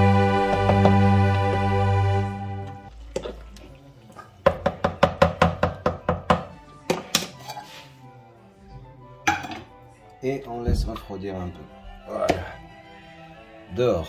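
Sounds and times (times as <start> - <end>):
background music: 0.0 - 14.0
wooden spoon knocking plastic bucket: 0.5 - 1.1, 4.4 - 7.3.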